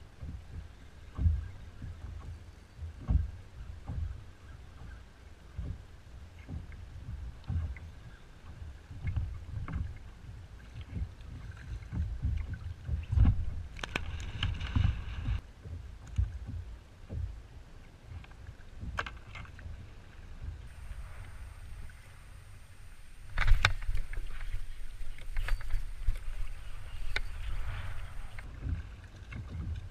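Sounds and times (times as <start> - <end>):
gusty wind buffeting microphone: 19.6 - 29.0.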